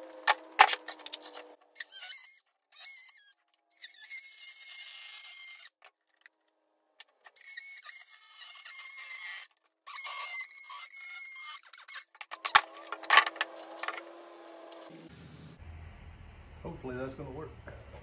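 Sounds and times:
power saw cutting plastic: 0:00.0 - 0:05.9, 0:07.3 - 0:15.1.

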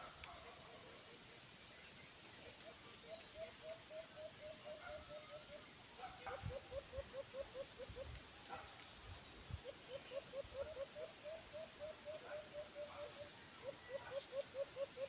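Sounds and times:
dove hooting: 0:02.4 - 0:08.3, 0:09.5 - 0:15.0.

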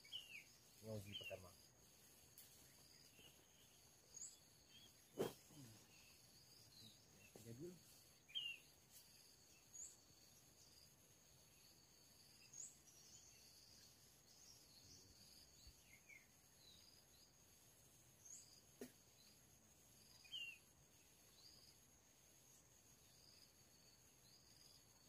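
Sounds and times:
high insect drone: 0:00.0 - 0:25.0
short bird chirps: 0:03.0 - 0:07.7.

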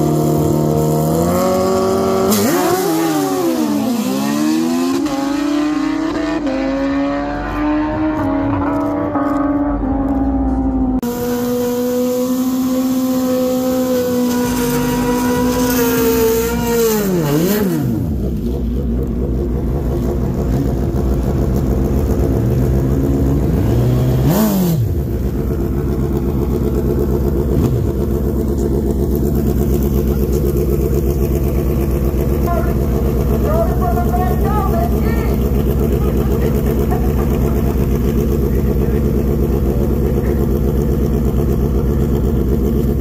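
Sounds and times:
motorcycle engine revving: 0:00.0 - 0:43.0.

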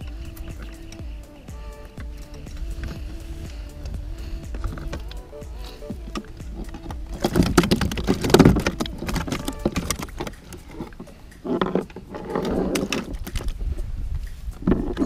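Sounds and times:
knocks and scraping on plastic hull: 0:06.1 - 0:13.6.

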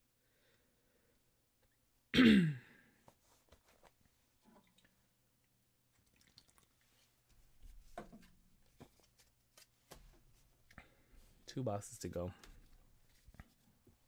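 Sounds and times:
hands handling cards: 0:08.0 - 0:10.8.

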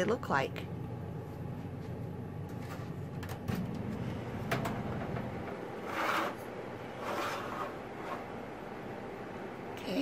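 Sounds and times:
dehydrator fan humming: 0:00.0 - 0:10.0
wire tray scraping on rails: 0:05.5 - 0:08.4.

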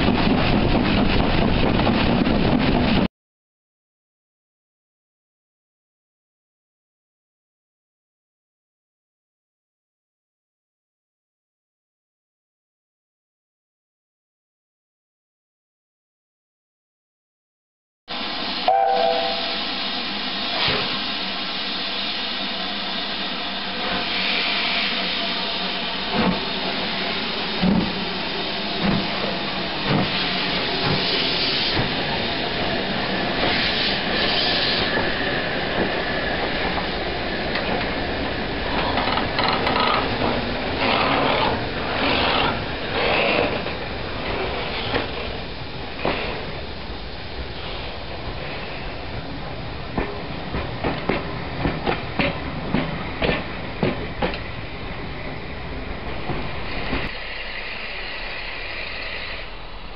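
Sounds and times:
steam hissing: 0:18.1 - 0:49.6, 0:56.4 - 0:59.9.

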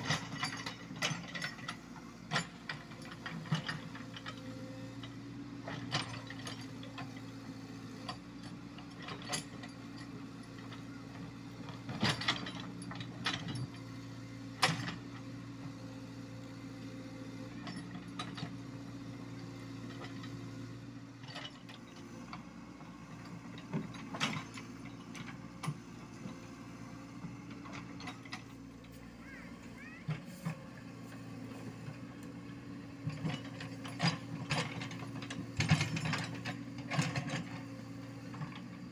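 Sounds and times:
excavator diesel engine running: 0:00.0 - 0:38.9.

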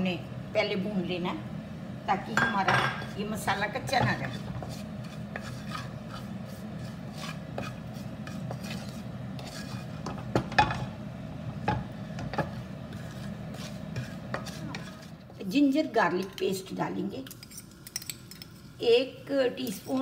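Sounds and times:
steady low hum: 0:00.0 - 0:20.0
wooden spoon scraping a wok: 0:03.0 - 0:15.4.

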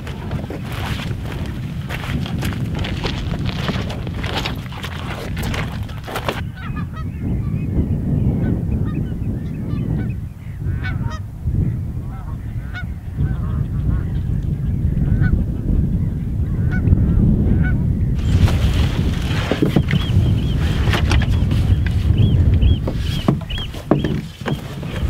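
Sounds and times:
wind rumble on microphone: 0:00.0 - 0:25.0
knocks: 0:22.8 - 0:24.6.

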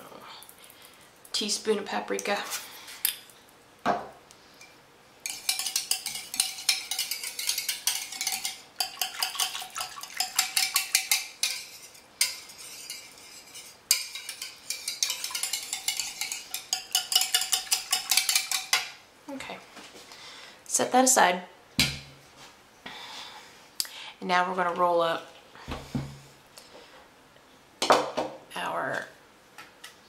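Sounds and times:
utensil whisking sauce in a bowl: 0:04.6 - 0:19.0.

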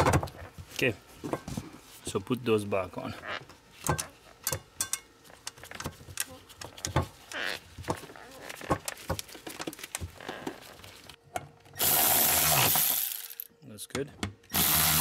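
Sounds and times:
cordless electric ratchet running: 0:11.8 - 0:13.5, 0:14.5 - 0:15.0.

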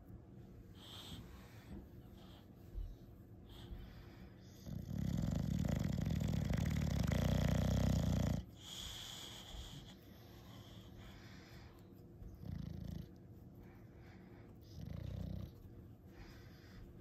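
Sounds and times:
dog snore-like grumble: 0:04.6 - 0:08.4.

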